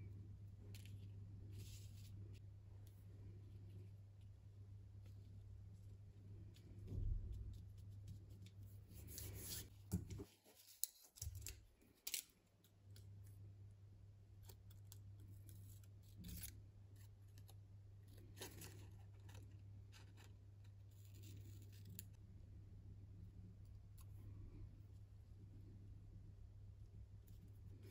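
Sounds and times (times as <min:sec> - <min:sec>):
faint low hum: 0:00.0 - 0:27.9.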